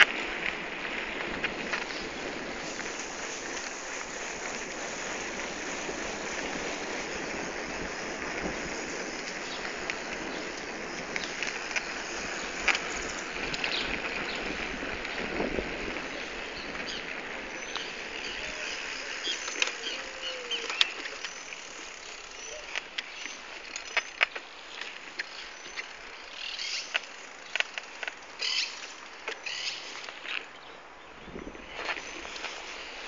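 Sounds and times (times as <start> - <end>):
bicycle clicks and rattles: 0.0 - 30.5
bicycle wind and tyre noise: 0.0 - 33.0
birds chirping: 9.2 - 33.0.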